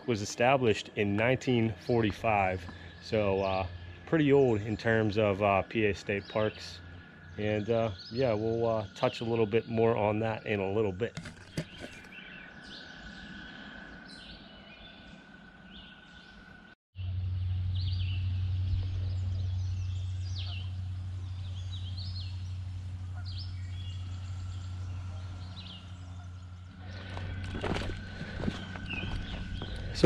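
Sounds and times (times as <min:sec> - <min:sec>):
steady low rumble: 0:00.0 - 0:10.5, 0:13.0 - 0:30.0
songbirds chirping: 0:00.0 - 0:30.0.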